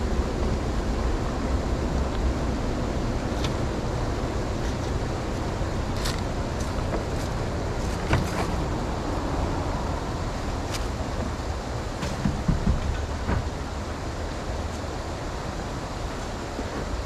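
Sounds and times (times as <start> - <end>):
creek water rushing: 0.0 - 17.0
debris knocking: 12.0 - 13.8.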